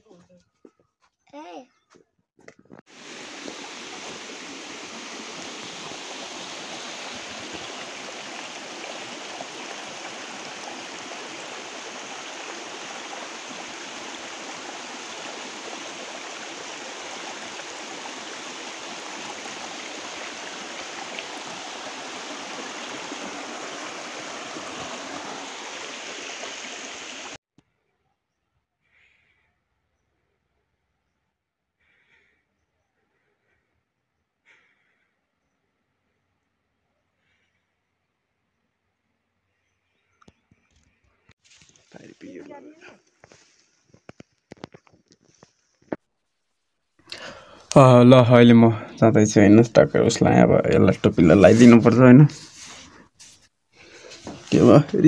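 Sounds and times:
stream flowing over rocks: 2.9s - 27.4s, 54.1s - 55.0s.

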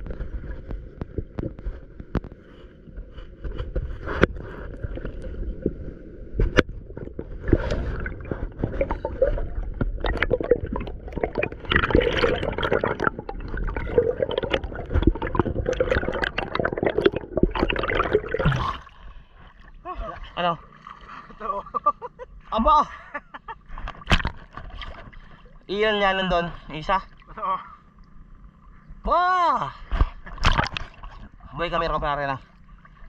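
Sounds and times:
water gurgling and splashing: 3.0s - 21.4s, 30.3s - 31.7s.

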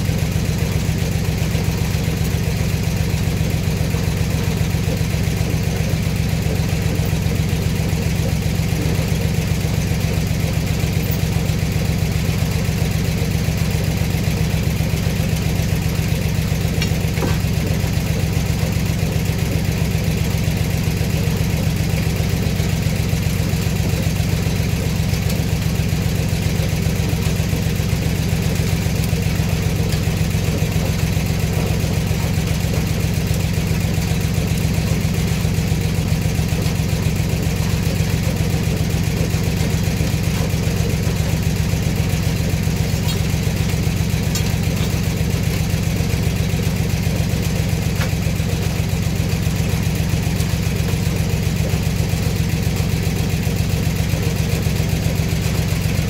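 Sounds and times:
engine throbbing steadily: 0.0s - 56.0s.

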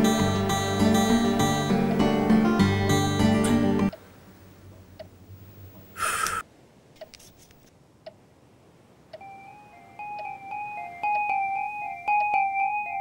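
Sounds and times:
bell-like keyboard melody: 0.0s - 3.9s, 9.2s - 13.0s.

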